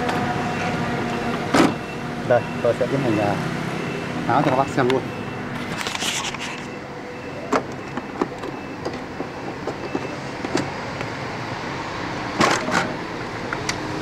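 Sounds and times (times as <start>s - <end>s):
plastic scraping rustle: 5.6s - 6.7s.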